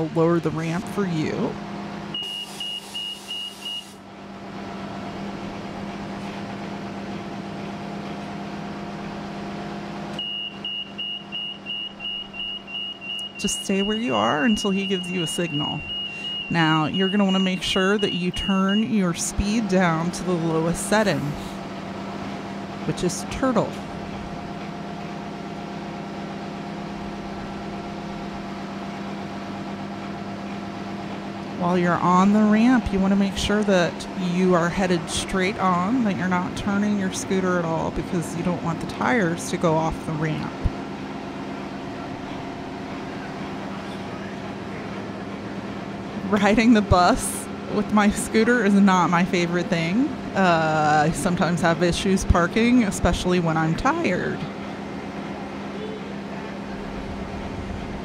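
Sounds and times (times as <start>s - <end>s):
bus engine idling: 0.0s - 58.0s
high warning beeper: 2.1s - 4.0s, 10.2s - 19.2s.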